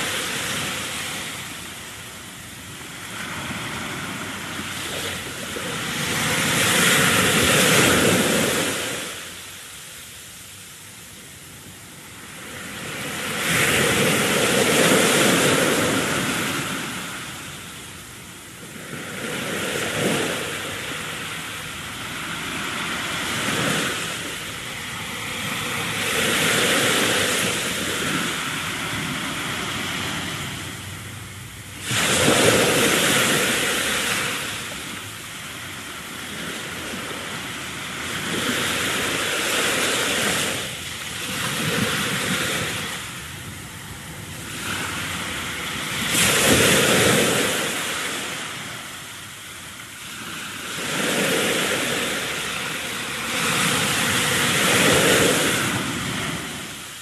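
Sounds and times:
loud rushing noise: 29.9s - 34.8s.

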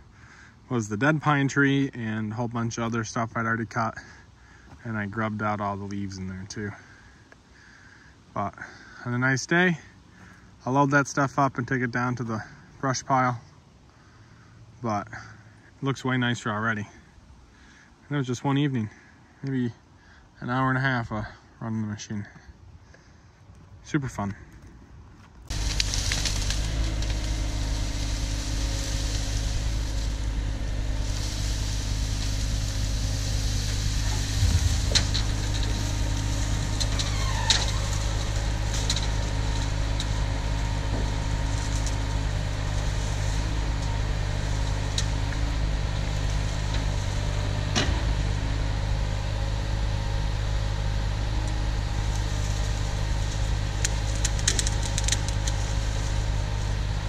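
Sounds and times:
clunks: 24.2s - 57.0s
excavator diesel engine running: 25.5s - 57.0s
brief rising squeal: 34.1s - 38.1s.

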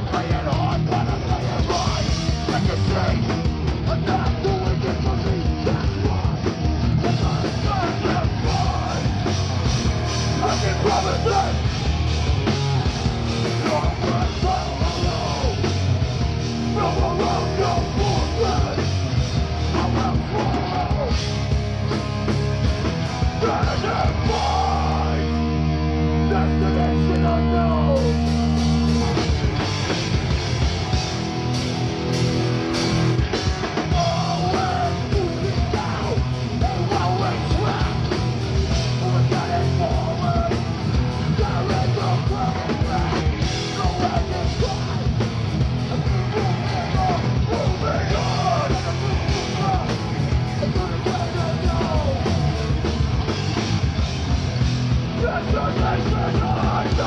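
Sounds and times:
bass: 0.0s - 57.0s
distorted electric guitars: 0.0s - 57.0s
drums: 0.0s - 57.0s
shouted vocals: 7.0s - 21.2s, 23.2s - 29.6s, 33.8s - 53.4s, 55.0s - 57.0s.

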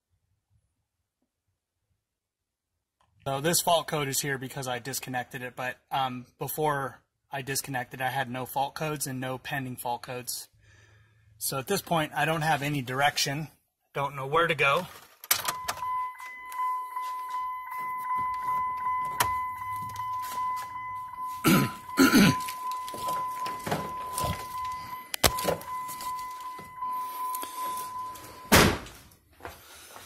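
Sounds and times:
high-pitched electronic tone: 15.5s - 28.6s
loud thump: 28.5s - 29.0s.

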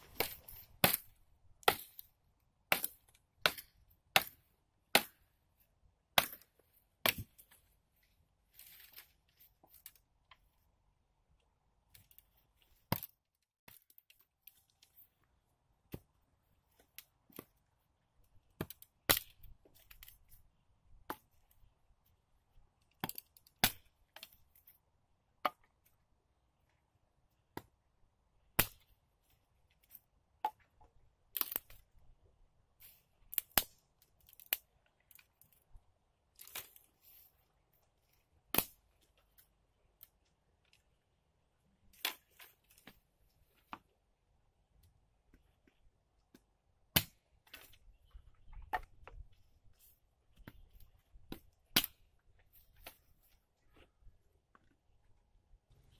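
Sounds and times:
branches rustling and clattering: 8.5s - 10.0s.

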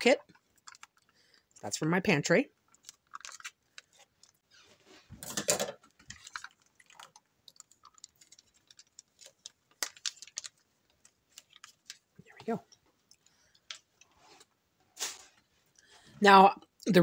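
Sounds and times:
plastic packet crinkling: 0.3s - 1.2s, 2.7s - 4.4s, 6.0s - 12.4s.

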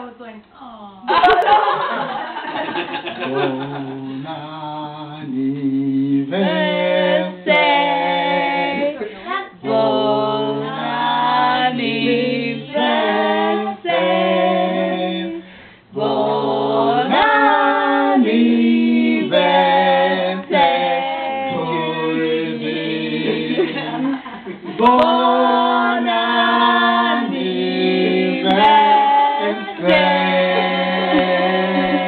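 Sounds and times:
man singing unaccompanied: 3.2s - 15.4s, 24.8s - 32.0s.

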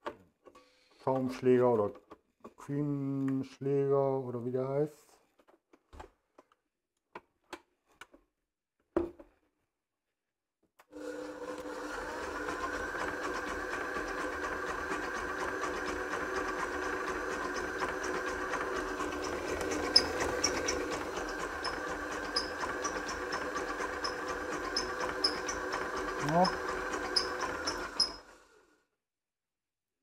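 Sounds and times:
stand mixer motor humming: 11.0s - 28.7s.

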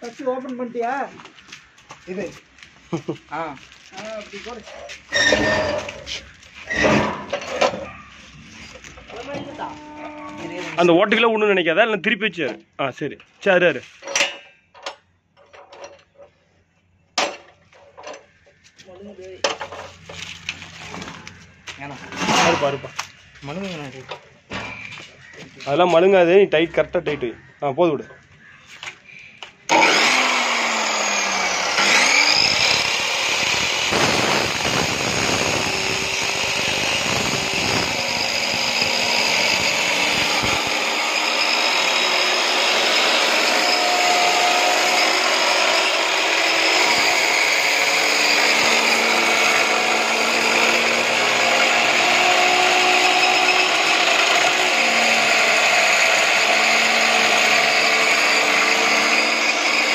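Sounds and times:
abrasive wheel grinding steel: 3.9s - 11.0s, 29.7s - 59.9s
cut-off saw motor whining: 5.1s - 7.7s, 29.7s - 59.9s.

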